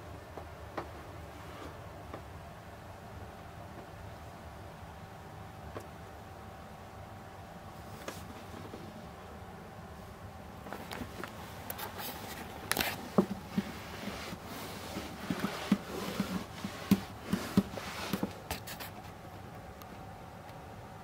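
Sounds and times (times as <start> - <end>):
faint steady hum: 0.0 - 21.0
handling knocks and rustles: 10.6 - 19.7.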